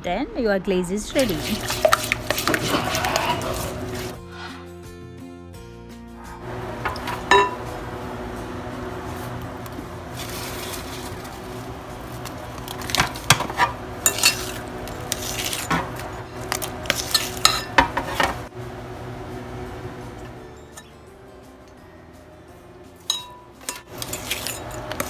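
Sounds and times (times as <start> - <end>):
utensils scraping in glass bowl: 1.2 - 4.2, 13.4 - 18.3, 23.7 - 25.0
metal spoon clinking on glass: 7.3 - 7.6, 23.0 - 25.0.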